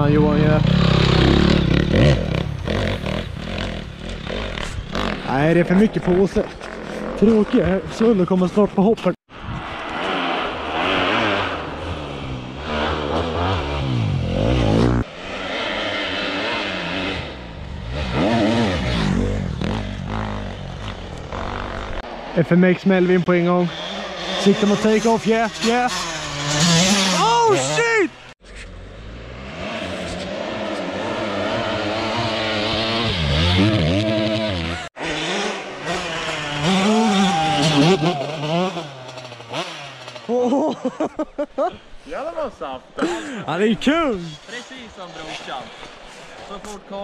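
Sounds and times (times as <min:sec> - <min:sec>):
dirt bike engine revving: 0:00.0 - 0:08.2, 0:09.8 - 0:41.0.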